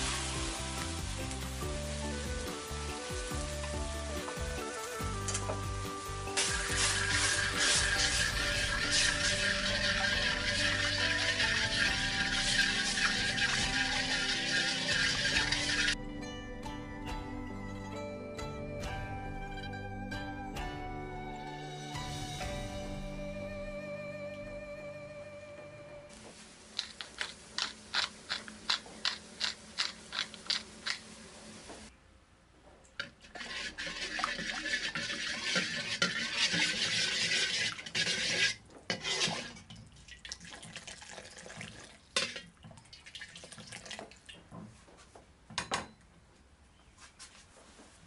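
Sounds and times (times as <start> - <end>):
pan sizzling: 0.0 - 16.0, 26.1 - 31.9, 33.0 - 39.7.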